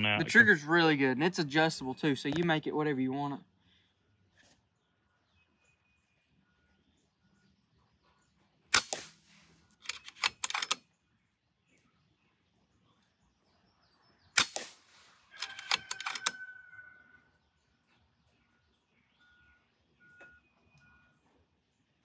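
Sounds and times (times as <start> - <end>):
faint bird chirps: 3.4 - 8.7, 15.3 - 22.0
air rifle shots: 8.7 - 10.8, 14.4 - 16.3
metallic clicks of rifle action: 9.8 - 10.9, 15.4 - 16.4.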